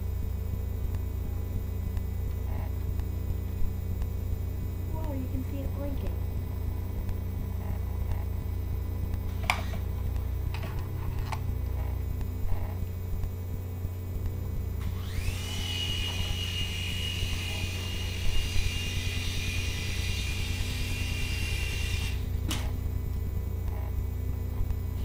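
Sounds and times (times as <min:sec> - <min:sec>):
toy helicopter motor whine: 0:09.3 - 0:12.8, 0:14.8 - 0:22.9.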